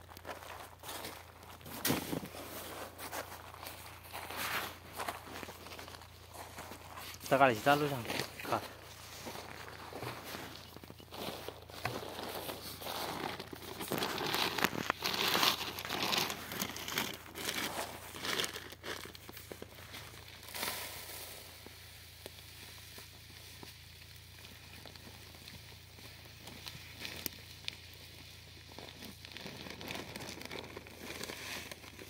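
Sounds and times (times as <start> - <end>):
plastic sack rustling: 0.0 - 32.0.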